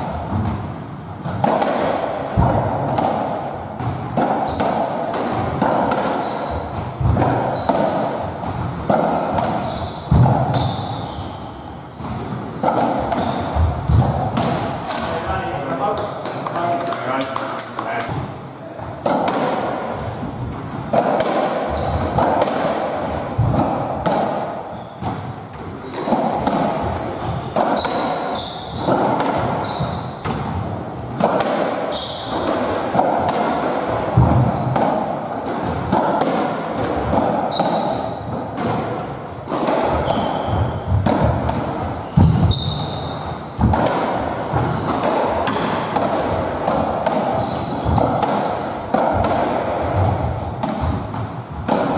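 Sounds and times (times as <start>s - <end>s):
ball struck by rackets: 0.0s - 11.4s, 12.0s - 51.9s
ball hitting court walls: 0.0s - 51.9s
shoes squeaking on wooden floor: 4.4s - 5.1s, 6.1s - 17.3s, 19.9s - 20.4s, 21.7s - 22.4s, 23.4s - 23.8s, 27.2s - 30.9s, 31.9s - 32.5s, 34.2s - 35.1s, 39.9s - 41.0s, 41.9s - 43.8s, 44.5s - 48.7s, 49.9s - 51.6s.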